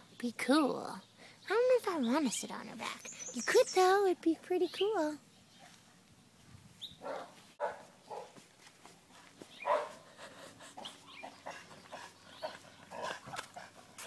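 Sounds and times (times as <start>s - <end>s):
dogs barking faintly: 6.9s - 8.5s, 9.1s - 14.0s.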